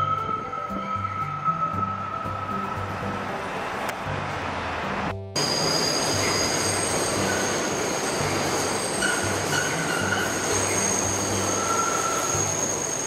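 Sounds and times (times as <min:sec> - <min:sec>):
elevated train rumbling: 0:00.0 - 0:13.0
high-pitched wheel squeal: 0:05.4 - 0:13.0
lower wheel squeals: 0:05.4 - 0:13.0.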